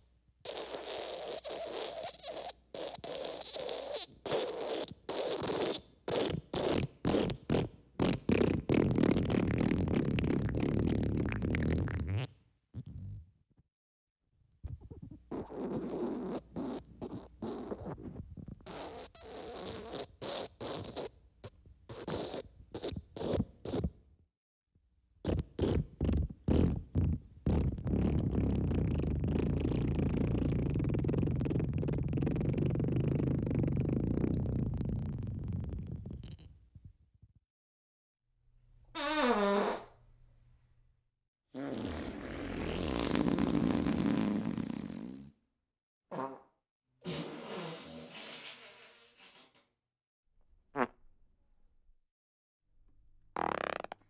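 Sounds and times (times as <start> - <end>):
wet sputtering fart: 0.5 - 13.3, 14.6 - 24.0, 25.2 - 36.6, 39.0 - 40.0, 41.5 - 45.4, 46.1 - 49.6, 50.7 - 51.0, 53.4 - 54.0.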